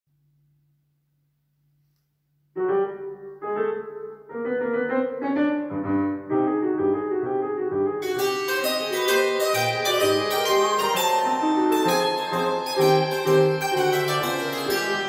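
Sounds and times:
hammered dulcimer tune: 8.0s - 15.0s.

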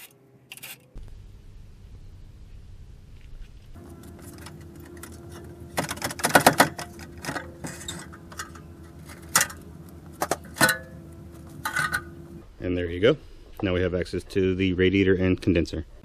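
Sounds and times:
steady low hum: 0.9s - 16.0s
metal tools clinking: 3.8s - 12.3s.

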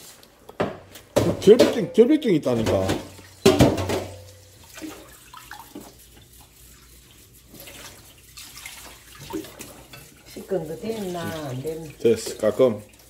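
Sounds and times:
metal colander clanking on sink: 1.2s - 4.4s
tap water running into sink: 2.5s - 13.0s
small water splashes: 2.7s - 13.0s.

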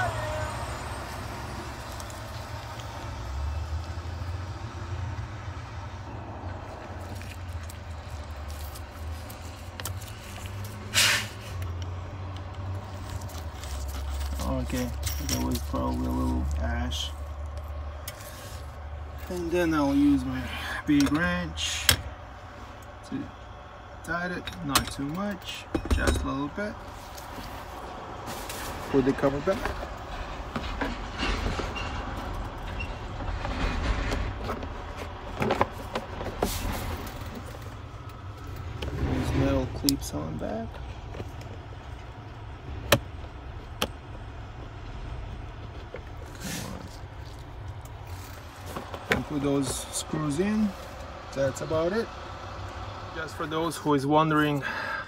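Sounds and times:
hiss of air: 10.9s - 11.6s.

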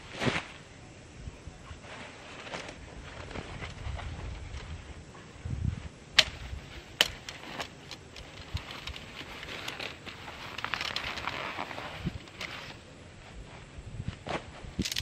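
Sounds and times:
fabric bag rustling: 7.3s - 12.8s.

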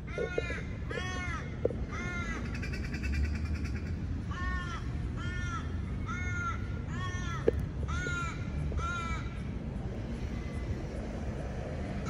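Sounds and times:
crow cawing: 0.0s - 3.3s, 4.3s - 9.4s.

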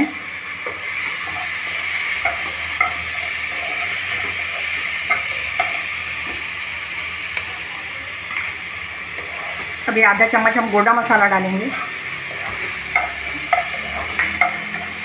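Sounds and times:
vegetables sizzling in oil: 0.0s - 15.0s.

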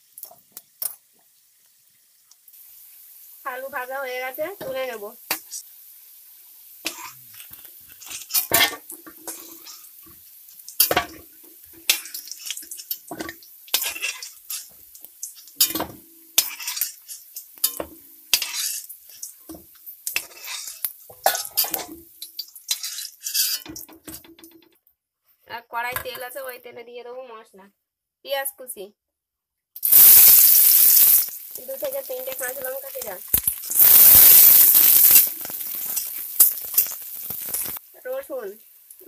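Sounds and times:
metal spoon scraping metal pan: 13.7s - 14.7s, 15.6s - 19.2s, 20.1s - 21.9s, 22.7s - 23.9s.

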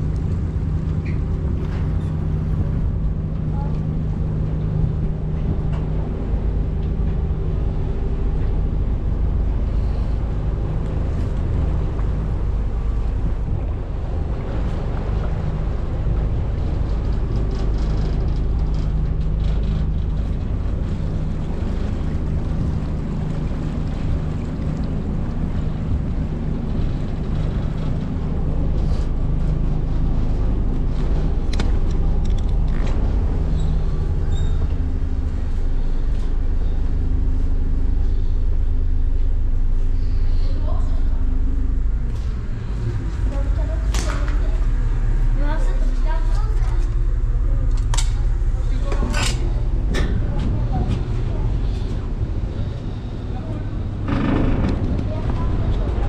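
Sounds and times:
large engine droning: 0.0s - 56.0s.

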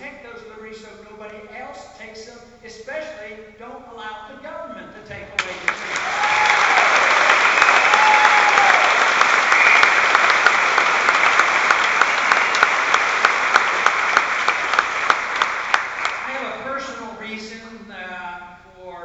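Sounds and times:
audience applauding: 5.4s - 16.4s.

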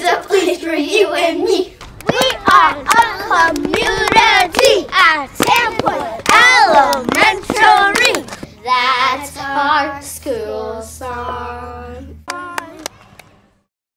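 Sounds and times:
children singing a chant: 0.0s - 13.0s
hand claps: 1.8s - 8.5s, 12.3s - 13.3s.

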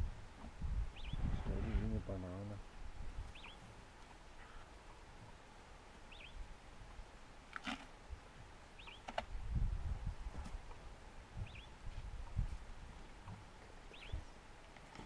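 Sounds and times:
elephant crunching roots: 7.5s - 7.9s.

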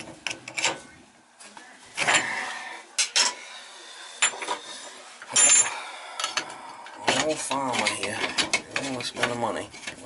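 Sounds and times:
metal tools clinking: 5.3s - 10.0s.

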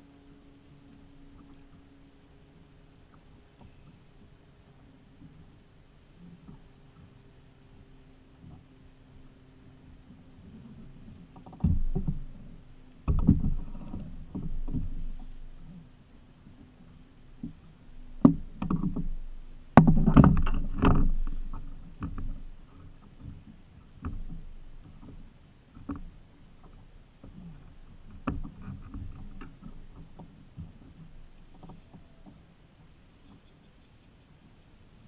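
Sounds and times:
knocks against plastic kayak: 19.8s - 21.3s.

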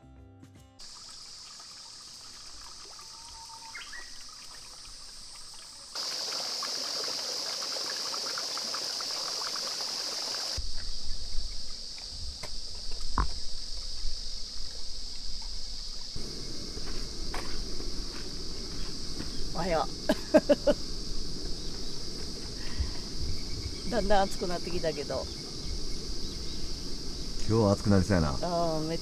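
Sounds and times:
stream trickling over rocks: 0.8s - 12.0s, 12.8s - 29.0s
insects droning: 0.8s - 29.0s
wind rumbling on microphone: 10.6s - 29.0s.

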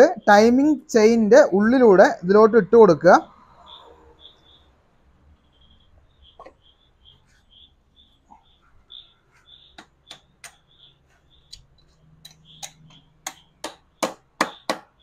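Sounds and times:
faint high chirp: 3.5s - 4.8s, 5.4s - 13.5s
metallic clicks and taps: 9.8s - 10.7s, 11.5s - 13.4s.

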